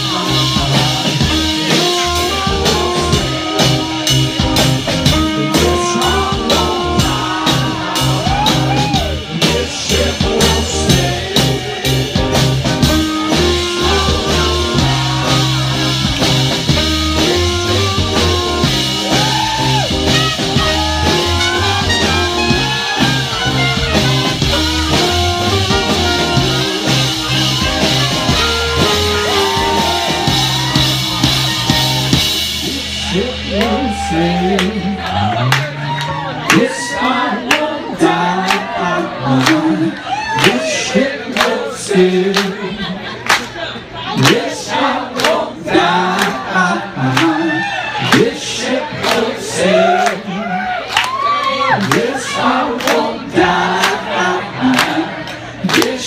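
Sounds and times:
person singing: 0:00.0 - 0:12.2, 0:12.9 - 0:16.0, 0:32.6 - 0:43.0
drum kit beat: 0:00.0 - 0:36.8
bass notes: 0:00.0 - 0:36.9
electric guitar: 0:12.1 - 0:36.5.

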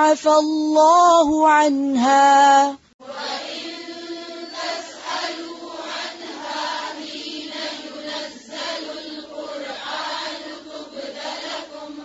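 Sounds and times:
person reciting: 0:00.0 - 0:12.0
group chanting in unison: 0:03.0 - 0:12.0.

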